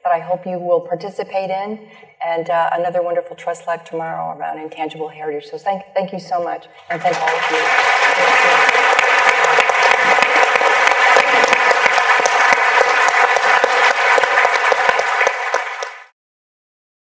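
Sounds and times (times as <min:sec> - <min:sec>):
audience applauding: 0:06.9 - 0:16.1.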